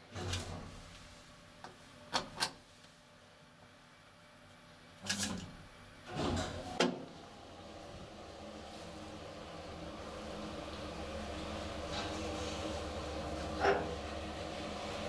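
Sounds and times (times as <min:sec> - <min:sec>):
elevator heavy clunks: 0:06.1 - 0:07.0.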